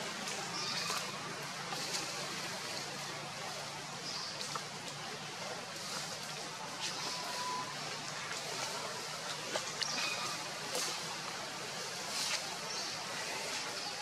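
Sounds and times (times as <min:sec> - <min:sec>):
faint high-pitched chirps: 0:06.9 - 0:07.8.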